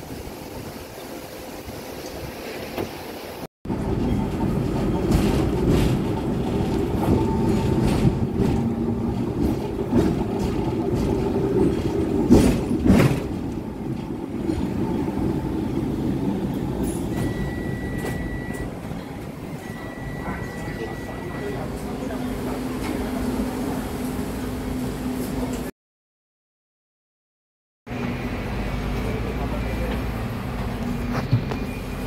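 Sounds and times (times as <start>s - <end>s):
tram rumble: 0.0s - 25.7s, 27.9s - 32.0s
wheels rattling on rails: 3.7s - 25.7s.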